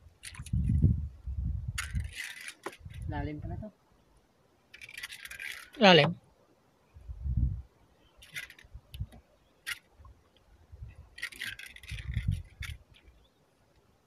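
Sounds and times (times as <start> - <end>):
fishing line rustles: 1.7 - 3.1, 4.7 - 5.8, 8.2 - 9.0, 11.0 - 13.2.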